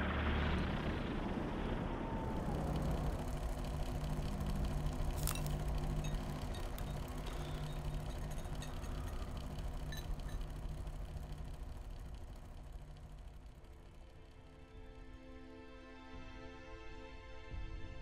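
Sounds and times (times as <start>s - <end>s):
electric fan humming: 2.1s - 15.2s.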